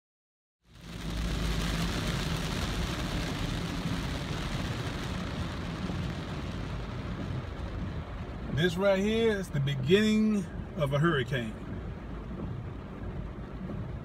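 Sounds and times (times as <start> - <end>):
car engine and tyre hum: 0.6 - 14.0
rain and wet road spray hiss: 0.7 - 14.0.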